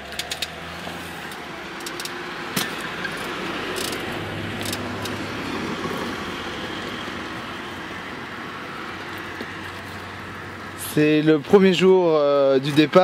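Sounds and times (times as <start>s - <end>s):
sharp clicks from bike: 0.0s - 0.6s, 1.2s - 5.2s
bicycle road rumble: 0.0s - 13.0s.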